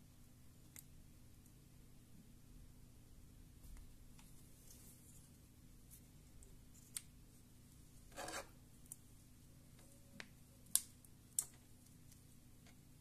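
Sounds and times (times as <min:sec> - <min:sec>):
tweezers scraping plastic: 0:08.1 - 0:08.6.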